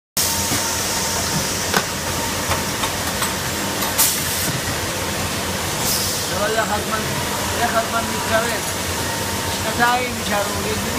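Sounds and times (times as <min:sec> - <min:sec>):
pneumatic air hiss: 0:04.0 - 0:04.6, 0:05.8 - 0:06.3.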